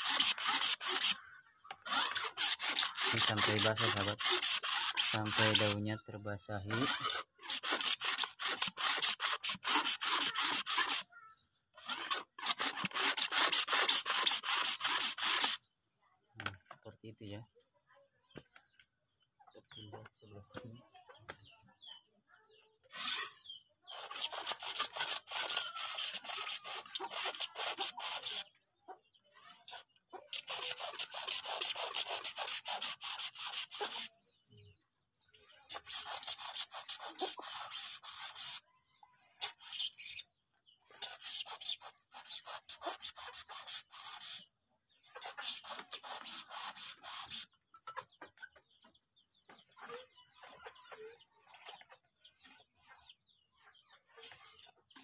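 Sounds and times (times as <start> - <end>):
garden sprayer hissing: 0.0 - 5.8, 6.7 - 15.7, 22.9 - 28.5, 29.4 - 34.2, 35.6 - 38.7, 40.9 - 44.5, 45.1 - 47.6.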